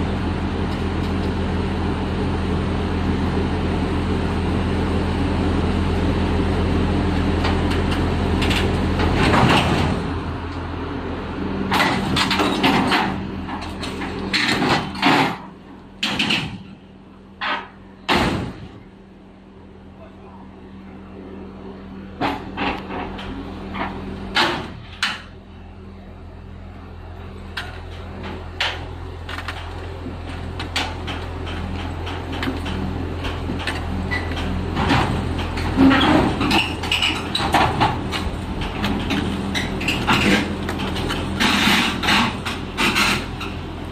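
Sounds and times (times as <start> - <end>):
engine droning: 0.0 - 43.9
crawler tracks clanking: 27.5 - 43.9.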